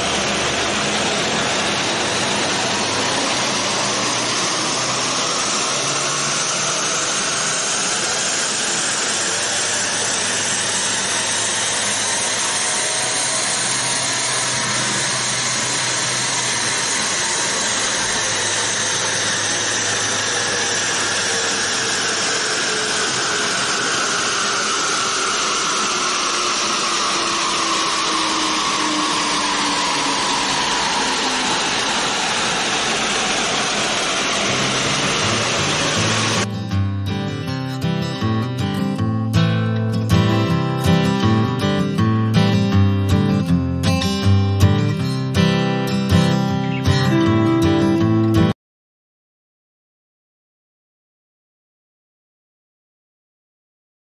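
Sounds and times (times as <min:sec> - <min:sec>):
loud rushing noise: 0:00.0 - 0:36.6
turbo engine whine: 0:00.0 - 0:48.6.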